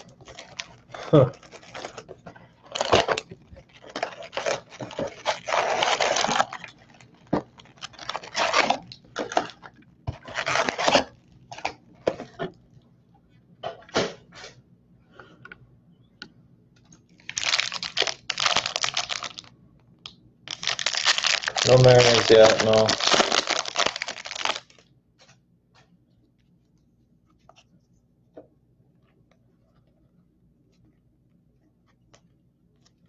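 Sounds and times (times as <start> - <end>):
foil wrappers crinkling and tearing: 0.0 - 11.8, 17.2 - 19.5, 20.5 - 24.8.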